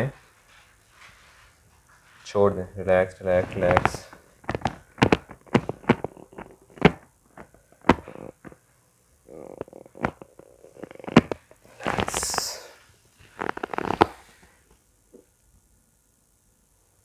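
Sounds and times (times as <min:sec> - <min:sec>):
clothing rustling: 0:00.0 - 0:02.6, 0:03.2 - 0:08.6, 0:09.8 - 0:14.6
crackles: 0:03.1 - 0:15.6
treatment table creaks: 0:03.2 - 0:08.6, 0:09.3 - 0:14.4.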